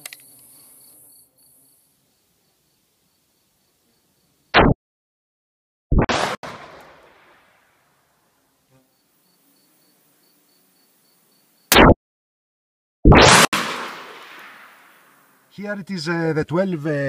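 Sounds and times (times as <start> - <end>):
shotgun blasts: 5.9 - 7.6, 11.7 - 12.0, 13.1 - 15.1.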